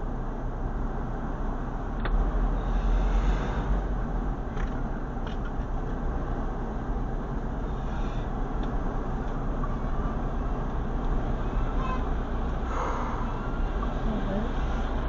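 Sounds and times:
car engine and tyre noise: 0.0 - 15.0.

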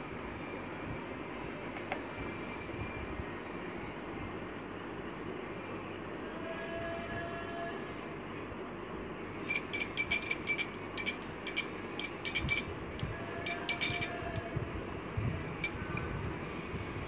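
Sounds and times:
stick clinking against glass bowl: 9.5 - 14.5, 15.6 - 16.1.

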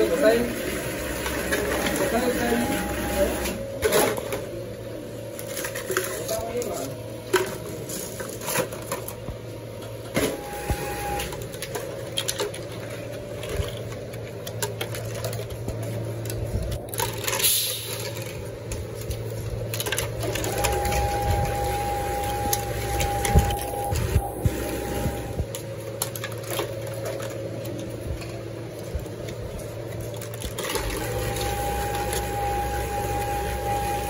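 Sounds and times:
steady low hum: 2.4 - 34.0.

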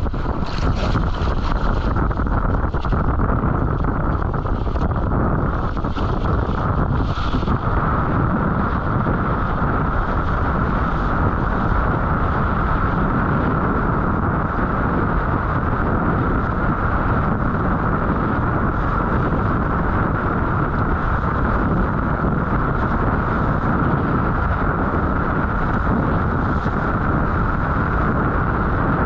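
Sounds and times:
rushing water: 0.0 - 8.1
wind buffeting microphone: 0.0 - 29.0.

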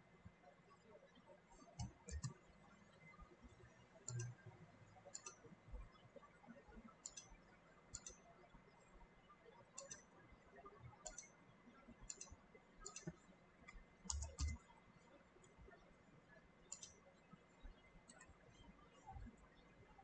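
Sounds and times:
computer mouse clicks: 1.6 - 2.4, 4.0 - 5.4, 7.0 - 8.2, 9.7 - 10.2, 11.0 - 11.4, 12.0 - 14.7, 16.7 - 17.0, 18.0 - 18.4.

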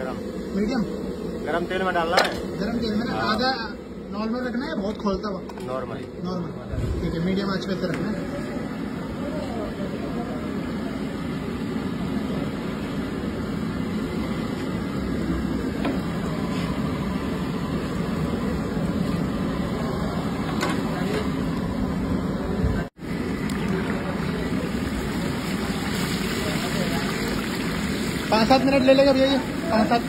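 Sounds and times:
oil bubbling and sizzling: 22.8 - 30.0.

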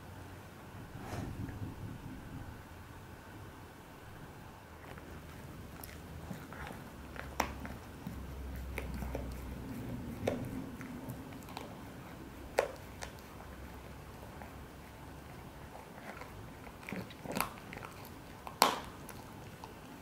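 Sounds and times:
dog chewing bone crunches: 4.8 - 20.0.

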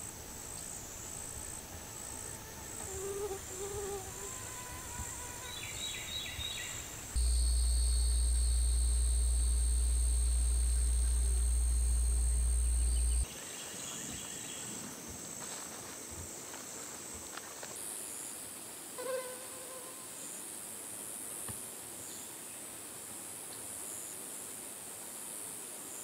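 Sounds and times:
insects trilling: 0.0 - 18.3
loud low rumble: 7.2 - 13.3.

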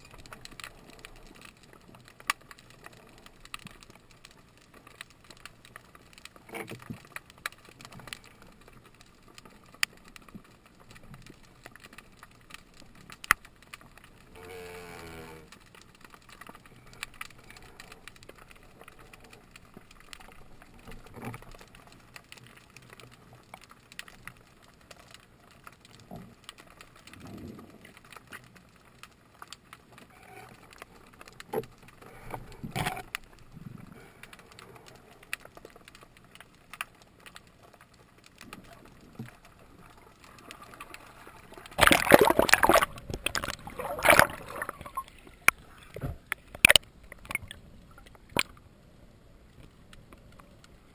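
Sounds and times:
faint underwater clicks and crackles: 0.0 - 50.9
bubbling churning water: 38.6 - 48.6.

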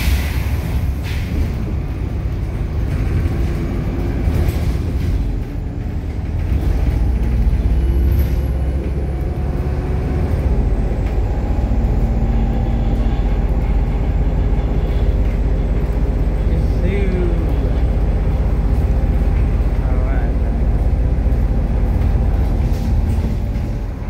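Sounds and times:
bus engine rumble: 0.0 - 24.0.

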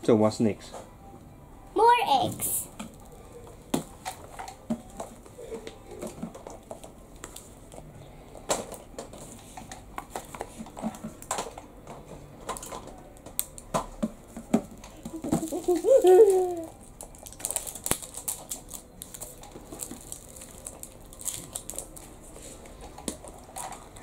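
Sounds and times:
scissors snipping wrapper: 17.0 - 22.0.

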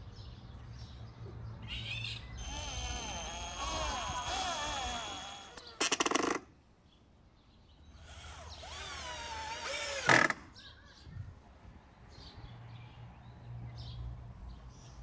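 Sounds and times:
cordless drill driving screws: 2.4 - 6.4, 8.0 - 10.4.

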